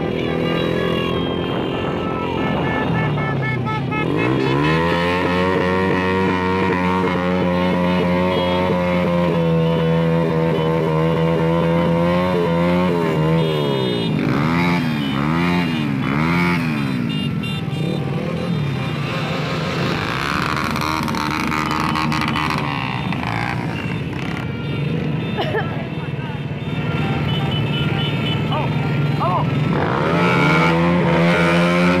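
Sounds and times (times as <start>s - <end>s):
traffic engine noise: 0.0s - 32.0s
motorcycle engine revving: 2.5s - 25.2s, 27.0s - 32.0s.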